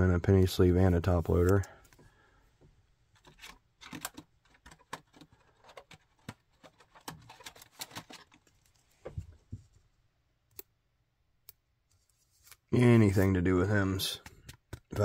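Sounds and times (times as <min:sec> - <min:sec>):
trading card rustling: 0:03.2 - 0:09.1.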